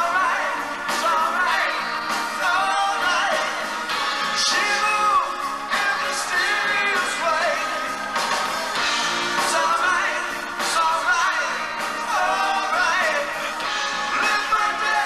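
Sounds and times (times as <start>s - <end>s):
live rock band playing: 0.0s - 15.0s
person singing lead vocals: 0.0s - 15.0s.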